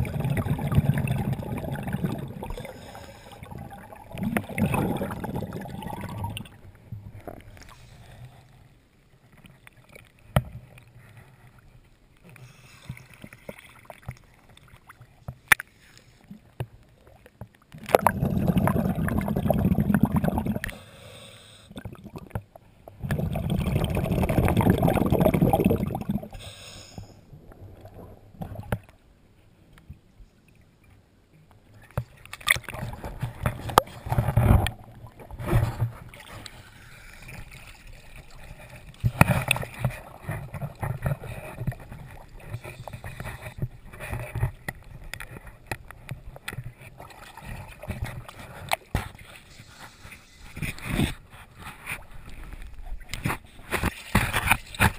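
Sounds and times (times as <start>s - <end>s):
underwater exhaled bubbles: 0.0s - 8.5s, 17.1s - 20.8s, 21.7s - 26.5s.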